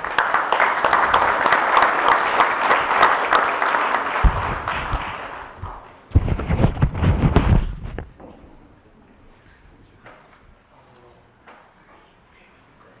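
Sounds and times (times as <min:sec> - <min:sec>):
audience applauding: 0:00.0 - 0:06.0
low thuds: 0:04.2 - 0:05.1.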